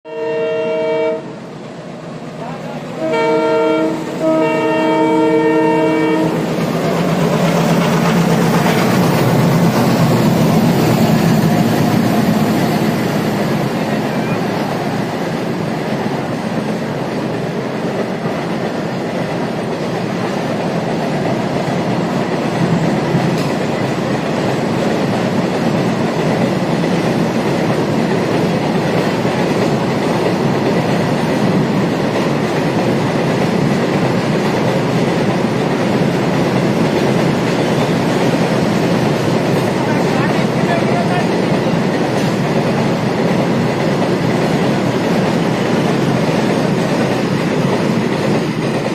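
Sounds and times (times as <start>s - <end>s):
locomotive horn blast: 0.1s - 1.4s, 3.0s - 6.5s
locomotive engines rumbling: 0.7s - 48.9s
train wheels clattering on rails: 3.5s - 48.9s.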